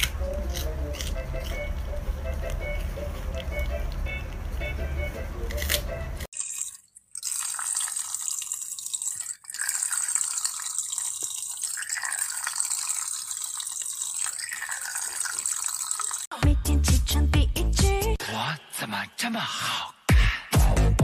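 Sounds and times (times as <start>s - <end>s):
tap water running into a basin: 6.3s - 16.3s.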